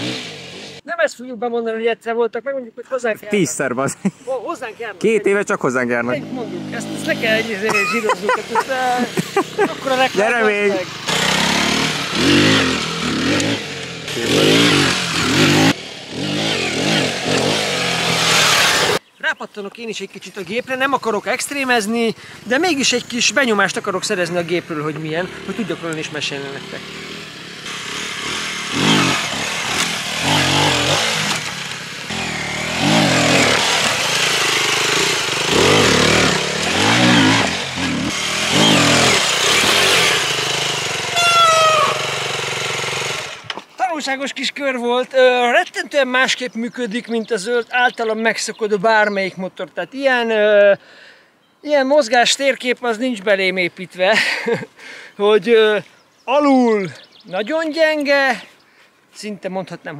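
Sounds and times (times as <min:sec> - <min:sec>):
motorcycle engine revving: 0:00.0 - 0:00.8, 0:06.0 - 0:19.1, 0:22.4 - 0:43.6.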